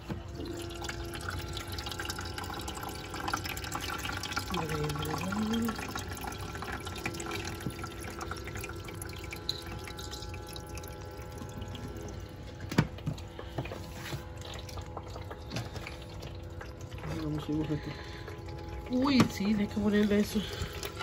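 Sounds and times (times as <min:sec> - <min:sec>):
faint machine hum: 0:00.0 - 0:21.0
water trickling and dripping: 0:00.0 - 0:21.0.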